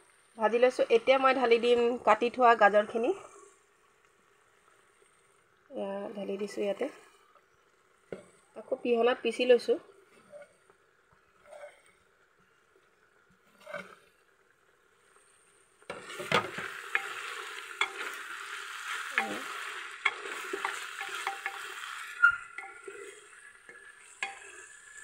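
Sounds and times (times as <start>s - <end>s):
vegetables sizzling in hot oil: 0.0s - 25.0s
spatula scraping metal pot: 11.4s - 11.9s, 13.5s - 14.0s, 15.9s - 25.0s.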